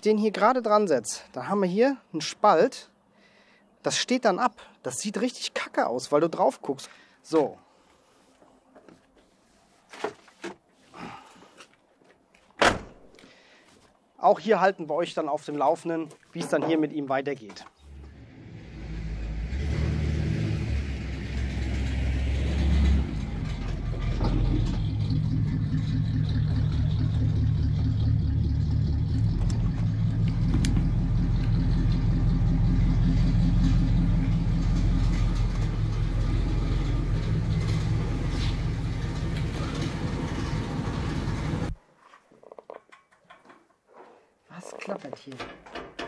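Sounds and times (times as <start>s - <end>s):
exhaust rattle: 17.9s - 41.8s
car engine idling: 21.0s - 41.8s.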